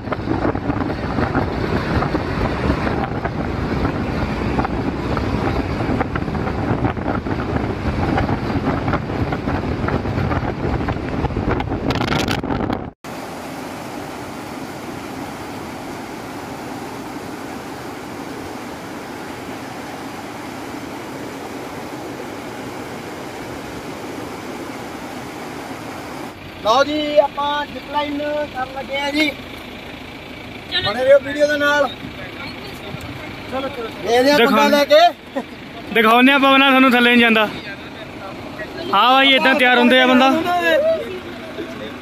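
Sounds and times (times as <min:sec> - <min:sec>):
wind buffeting microphone: 0:00.0 - 0:13.0
moving vehicle rumble: 0:00.0 - 0:42.0.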